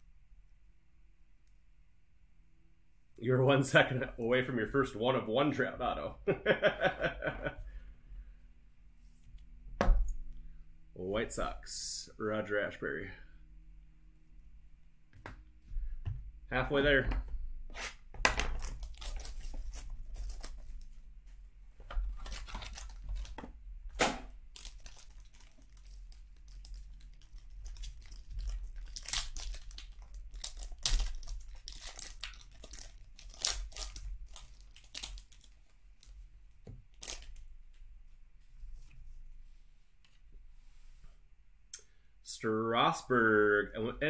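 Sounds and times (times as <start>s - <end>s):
foil wrapper tearing and crinkling: 18.3s - 20.9s, 22.0s - 23.4s, 24.5s - 36.2s, 36.9s - 37.4s.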